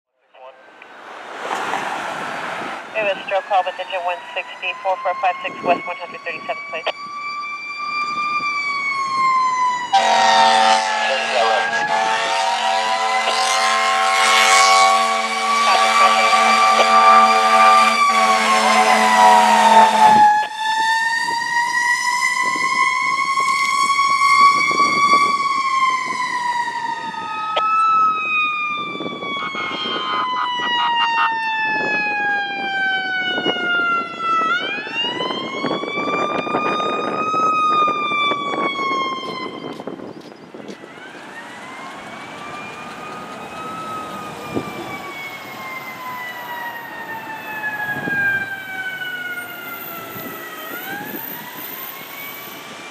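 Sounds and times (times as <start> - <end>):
emergency sirens wailing: 0.2 - 52.9
air horn: 9.9 - 20.4.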